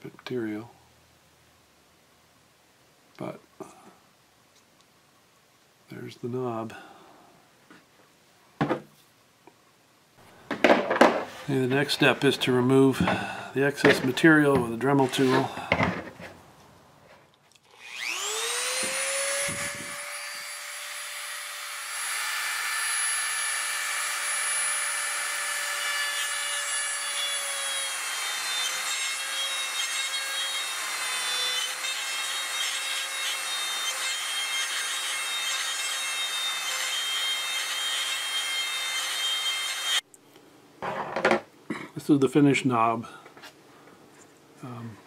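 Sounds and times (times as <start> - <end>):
rotary tool grinding plastic: 17.6 - 20.1
rotary tool whine: 17.6 - 28.6.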